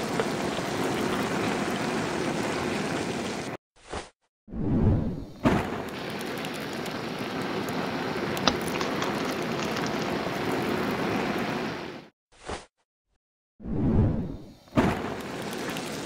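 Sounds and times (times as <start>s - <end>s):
hiss with small crackles: 14.8s - 16.0s.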